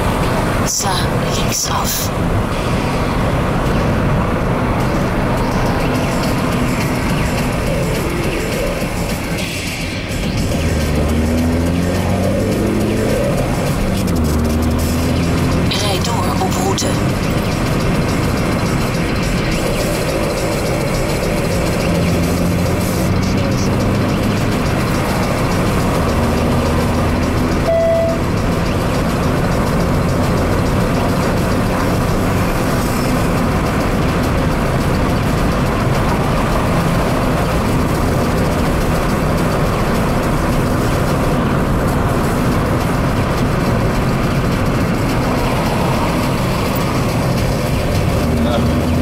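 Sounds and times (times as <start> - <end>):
car engine running steadily: 0.0 - 49.0
tyre and road noise: 0.0 - 49.0
brief beep: 27.6 - 28.2.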